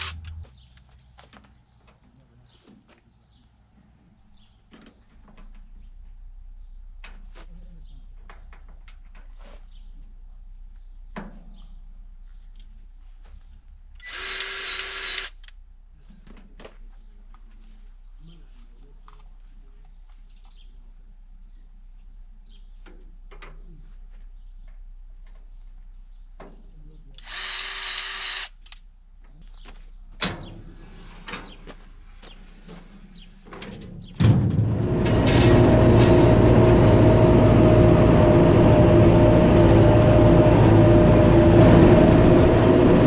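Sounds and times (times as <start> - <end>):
grease gun motor whining: 0.0 - 0.4, 14.0 - 15.5, 27.2 - 28.8.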